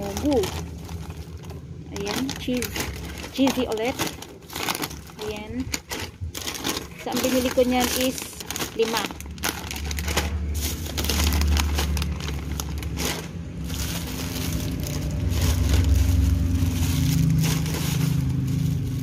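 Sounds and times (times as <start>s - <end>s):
low steady hum: 0.0s - 19.0s
plastic bag and wrappers rustling: 0.0s - 19.0s.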